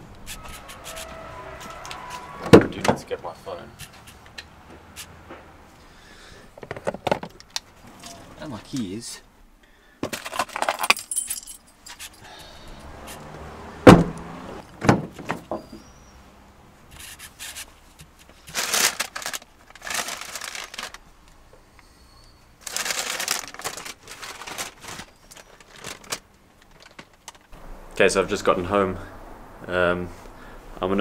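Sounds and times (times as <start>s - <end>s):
rustling and handling noise: 3.8s - 9.0s, 10.0s - 12.2s, 16.9s - 21.6s, 22.6s - 27.6s
car keys jangling: 10.4s - 13.0s
heavy thump: 13.8s - 14.2s.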